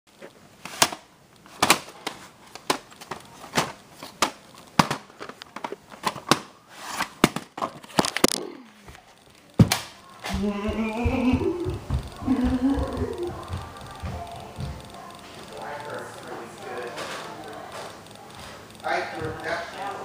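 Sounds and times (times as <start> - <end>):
music: 12.1 - 18.9.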